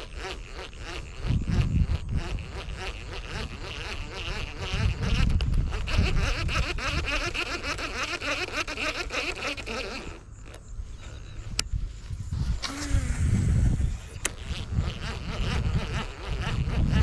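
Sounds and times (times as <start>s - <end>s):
low rumbling on microphone: 10.7s - 17.0s.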